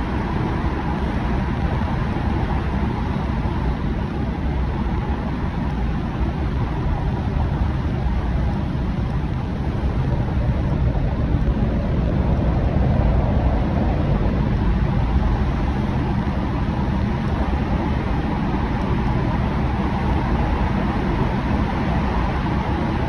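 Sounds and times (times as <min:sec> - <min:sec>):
car road and engine rumble: 0:00.0 - 0:23.0.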